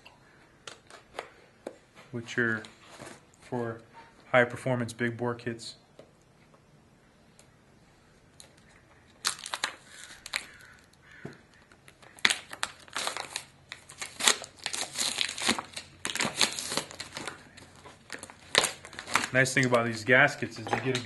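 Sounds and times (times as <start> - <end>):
plastic packaging crinkling: 8.4 - 21.0.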